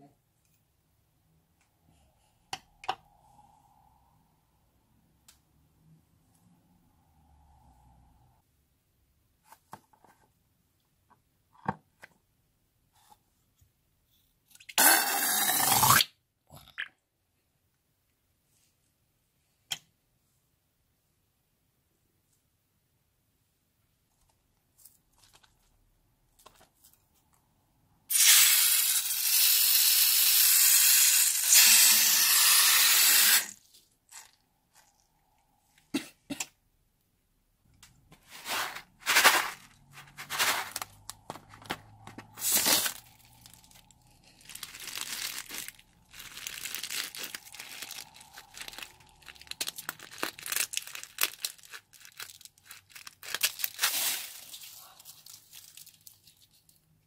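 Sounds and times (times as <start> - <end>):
sequins spilling: 42.3 - 51.8.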